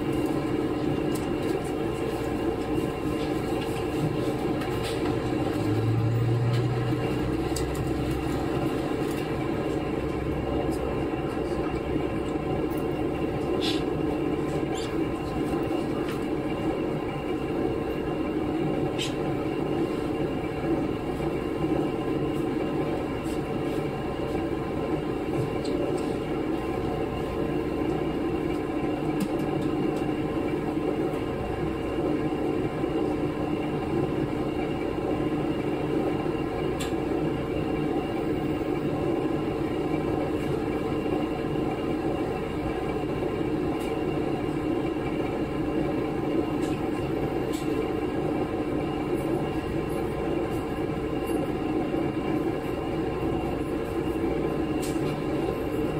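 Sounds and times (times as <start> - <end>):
diesel railcar engine drone: 0.0 - 55.9.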